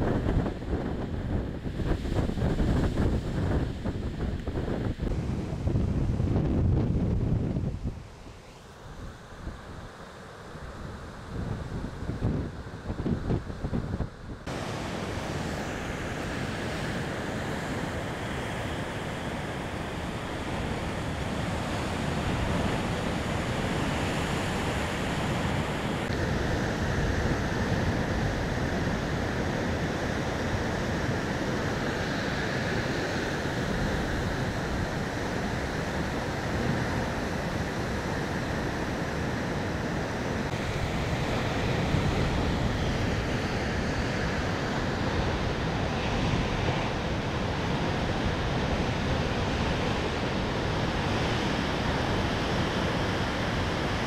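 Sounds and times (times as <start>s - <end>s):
waves crashing on rocks: 14.5s - 54.0s.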